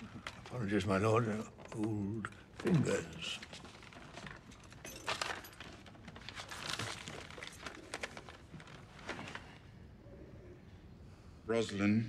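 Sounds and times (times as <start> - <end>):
paper rustling: 3.2 - 9.6.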